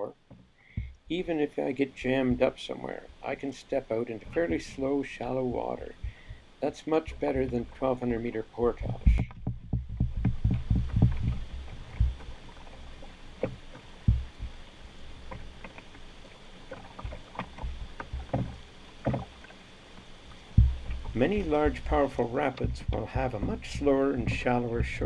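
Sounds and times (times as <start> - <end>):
pole knocking on canoe hull: 0.2 - 1.0, 2.0 - 2.6, 4.2 - 6.4, 7.0 - 14.6, 16.7 - 19.4, 20.4 - 25.0
rapids rushing: 16.7 - 25.0.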